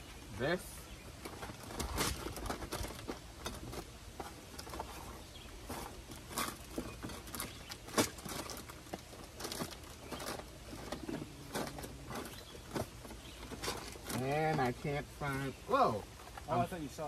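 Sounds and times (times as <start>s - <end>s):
items rummaged in storage bin: 1.3s - 14.7s.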